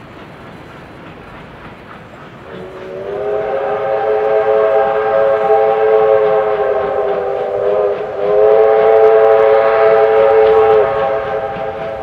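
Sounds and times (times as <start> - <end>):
train rumble: 0.0 - 12.0
steam locomotive chime whistle: 2.4 - 12.0.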